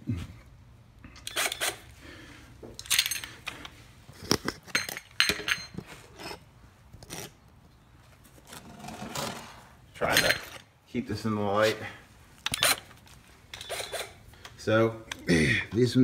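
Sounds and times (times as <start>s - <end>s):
metallic clinks of tools: 2.8s - 3.6s.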